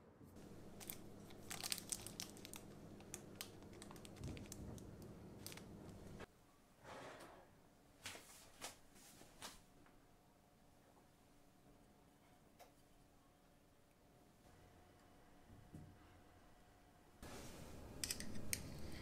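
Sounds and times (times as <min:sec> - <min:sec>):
plastic wrapper crinkling: 0:00.4 - 0:06.2.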